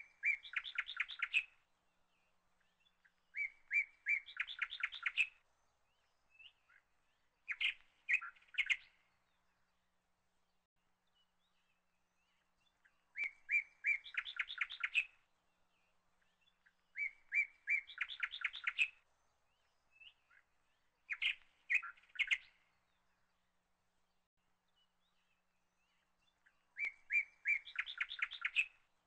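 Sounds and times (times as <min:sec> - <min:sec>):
bird chirping and trilling: 0:00.0 - 0:01.5, 0:03.4 - 0:05.4, 0:07.5 - 0:09.0, 0:13.2 - 0:15.2, 0:17.0 - 0:19.0, 0:21.1 - 0:22.6, 0:26.8 - 0:28.8.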